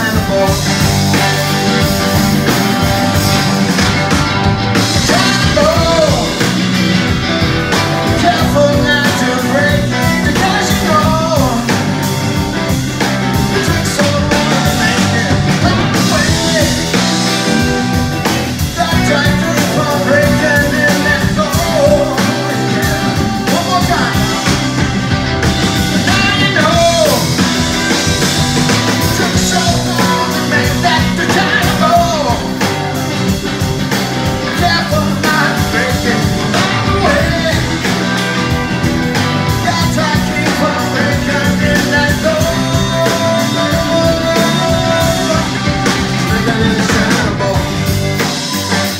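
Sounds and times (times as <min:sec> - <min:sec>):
drum kit: 0:00.0 - 0:48.9
electric bass: 0:00.0 - 0:48.9
electric guitars: 0:00.0 - 0:48.9.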